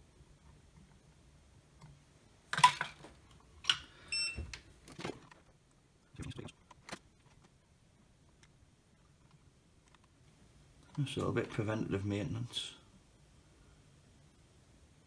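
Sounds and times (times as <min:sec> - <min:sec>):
short electronic beep: 0:04.1 - 0:04.4.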